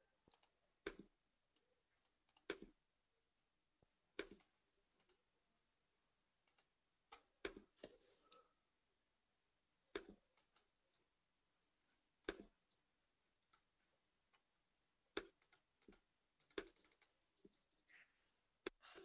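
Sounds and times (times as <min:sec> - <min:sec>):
faint clicks and taps: 0:00.2 - 0:02.8, 0:03.8 - 0:05.3, 0:06.4 - 0:08.5, 0:09.8 - 0:11.1, 0:11.8 - 0:19.0.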